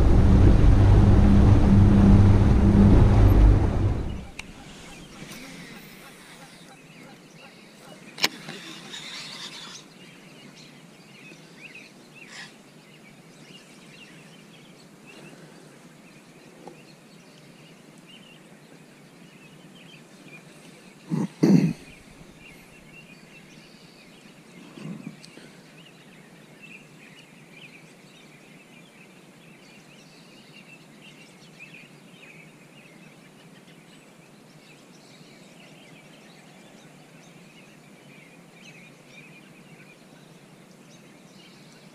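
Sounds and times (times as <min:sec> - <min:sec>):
dull low bumps: 0:00.0 - 0:05.2.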